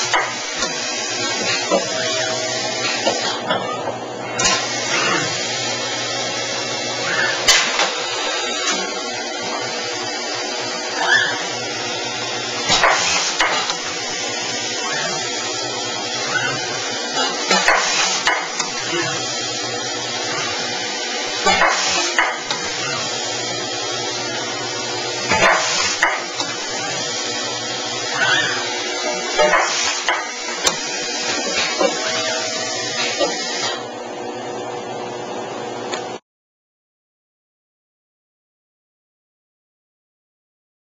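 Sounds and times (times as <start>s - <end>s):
machinery running: 0.0s - 34.2s
hissing whirring bursts: 4.4s - 33.9s.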